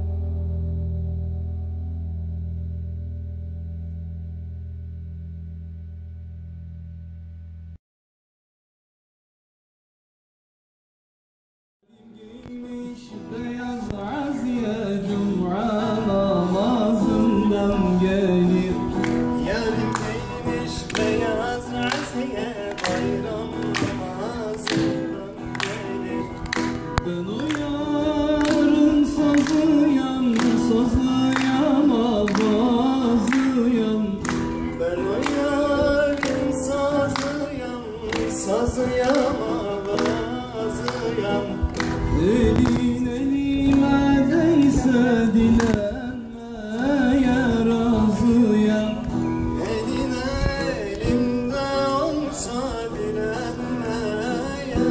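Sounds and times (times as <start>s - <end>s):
man singing into a microphone: 11.8s - 54.9s
strummed acoustic guitars: 12.1s - 54.9s.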